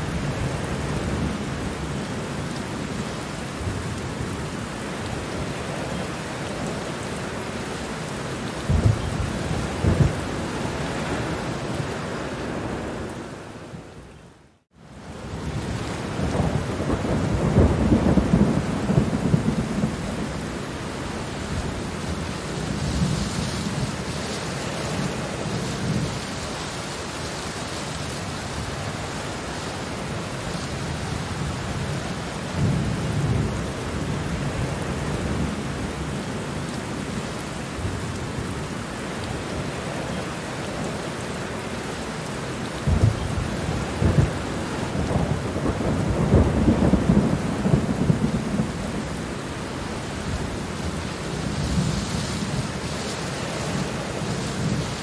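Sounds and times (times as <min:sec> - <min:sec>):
steady rain: 0:00.0 - 0:55.0
thunder rumbling: 0:08.6 - 0:13.4, 0:15.3 - 0:20.6, 0:42.8 - 0:55.0.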